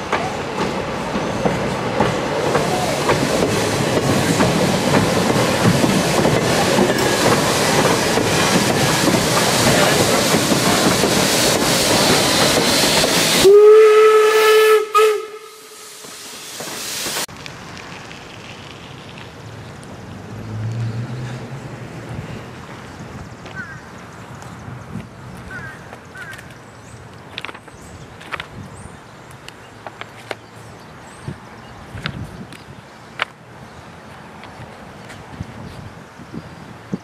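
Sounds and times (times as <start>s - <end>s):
steam train rumbling past: 0.0s - 23.3s
steam hissing: 0.8s - 17.3s
steam whistle: 13.3s - 16.4s.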